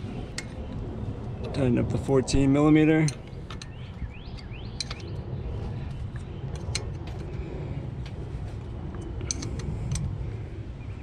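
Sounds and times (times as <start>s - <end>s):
steady low hum: 0.0s - 11.0s
wrench metallic clicks: 4.4s - 5.1s.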